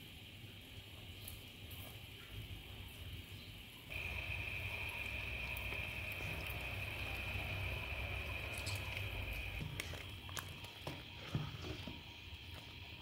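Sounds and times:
gas burner rumble and hiss: 0:03.9 - 0:09.8.

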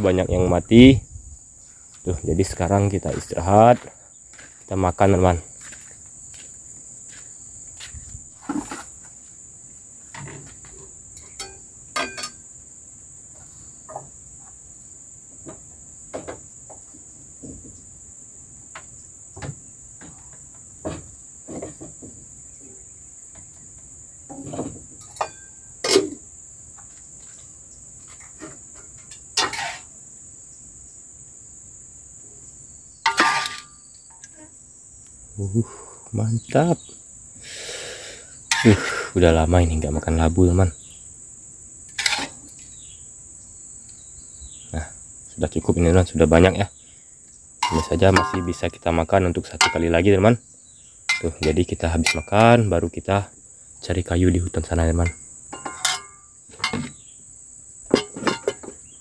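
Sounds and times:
crickets chirping: 0:00.0 - 0:59.0
utensils knocking on dishes: 0:11.4 - 0:12.4, 0:47.6 - 0:48.7, 0:49.6 - 0:49.9, 0:51.1 - 0:52.4, 0:55.0 - 0:57.0, 0:57.9 - 0:58.8.

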